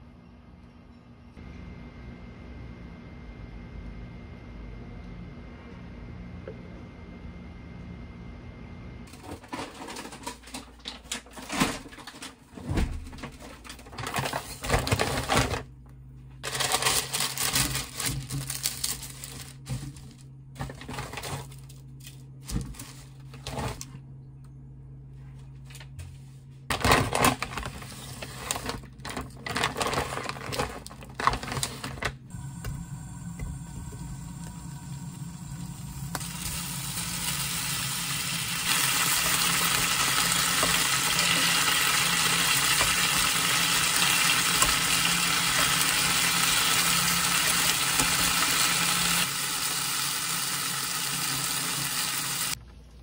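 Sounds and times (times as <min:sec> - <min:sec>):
low steady hum: 0:00.0 - 0:49.2
utensils and metal basket clatter: 0:09.1 - 0:12.4, 0:13.1 - 0:15.7, 0:16.4 - 0:23.8
paper and plastic packaging rustling: 0:09.1 - 0:15.7, 0:16.4 - 0:23.9, 0:25.4 - 0:32.2.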